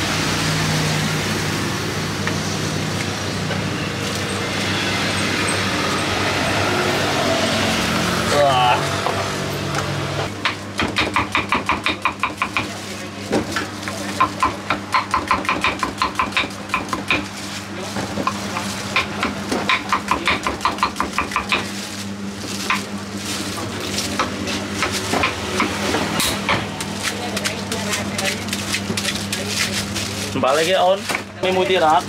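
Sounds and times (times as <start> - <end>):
knife chopping on wooden board: 10.4 - 12.7, 13.8 - 17.3, 18.2 - 21.7.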